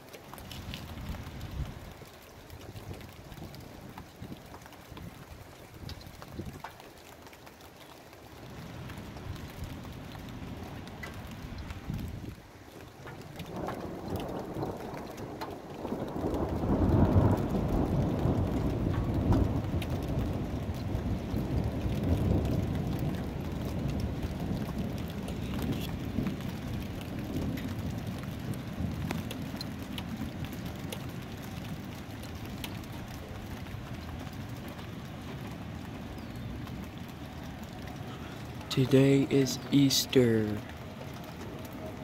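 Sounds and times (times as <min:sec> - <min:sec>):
rain falling: 0:00.0 - 0:42.0
thunder rolling: 0:13.5 - 0:32.3.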